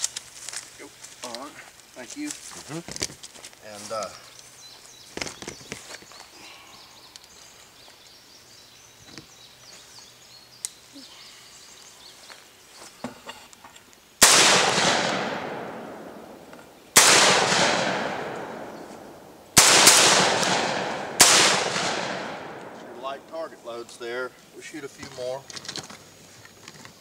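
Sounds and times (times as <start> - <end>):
shotgun shots echoing: 14.2 - 23.2.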